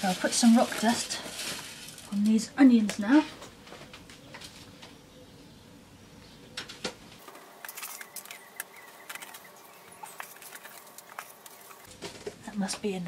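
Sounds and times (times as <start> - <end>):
grains pattering on compost: 0.0 - 3.3, 7.2 - 12.5.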